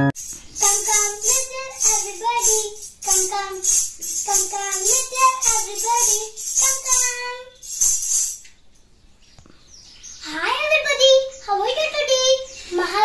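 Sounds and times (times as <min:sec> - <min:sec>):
girl singing: 0:00.0 - 0:08.3, 0:10.2 - 0:13.0
jingling hand clappers: 0:00.2 - 0:08.5.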